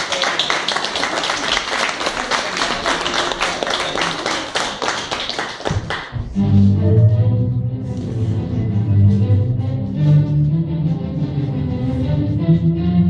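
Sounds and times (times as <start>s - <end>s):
audience applauding: 0.0s - 6.2s
music: 5.8s - 13.0s.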